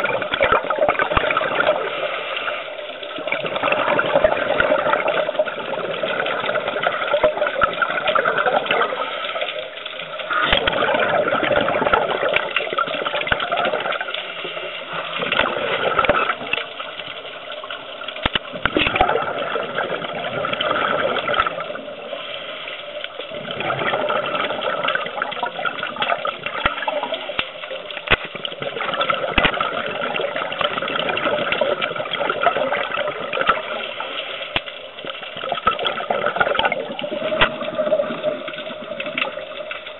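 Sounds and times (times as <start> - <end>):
muffled underwater exhaust bubbles: 0.0 - 39.9
clicks: 18.0 - 19.0.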